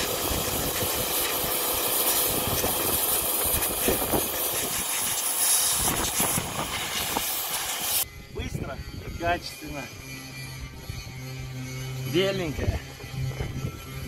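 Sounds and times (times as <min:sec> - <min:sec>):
pressure washer jet hissing: 0:00.0 - 0:08.0.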